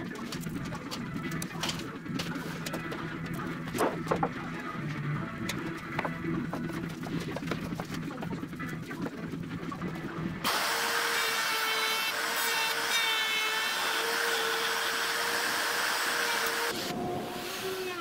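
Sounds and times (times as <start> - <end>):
router cutting wood: 10.4 - 18.0.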